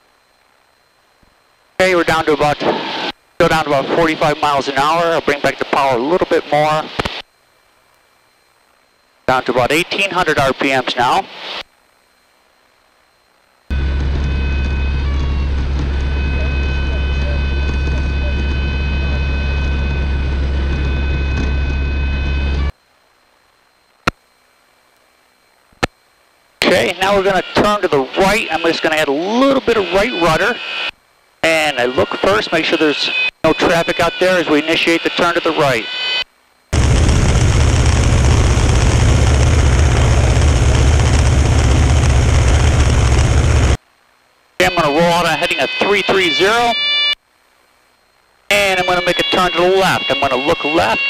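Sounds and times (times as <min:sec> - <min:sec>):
wind rush on microphone: 0:36.8 - 0:43.8
light aircraft engine and propeller: 0:37.8 - 0:43.8.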